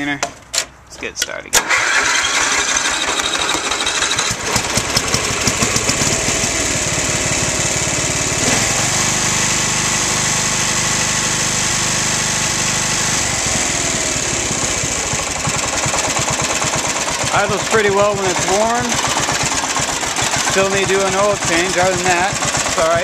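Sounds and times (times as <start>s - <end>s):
mower engine idling: 1.6s - 23.0s.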